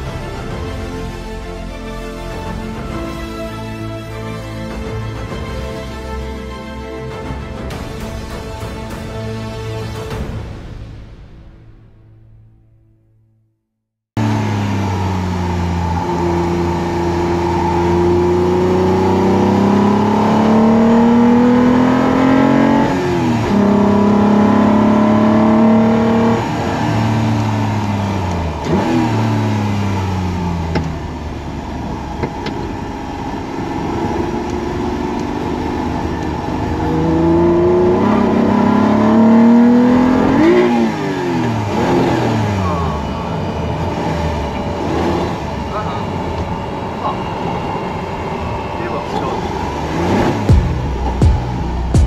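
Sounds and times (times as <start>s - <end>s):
car engine accelerating hard: 14.2s - 52.0s.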